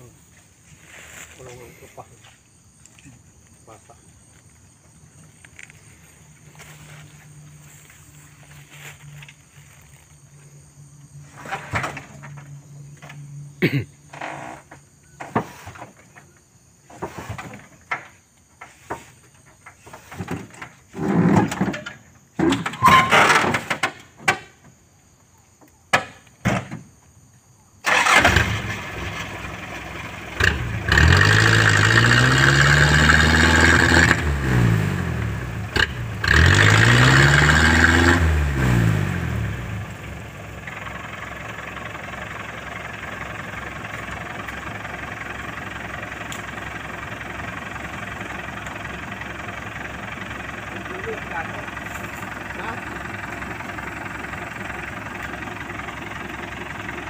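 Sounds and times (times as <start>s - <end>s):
truck engine revving: 27.9s - 40.9s
truck engine idling: 39.2s - 57.0s.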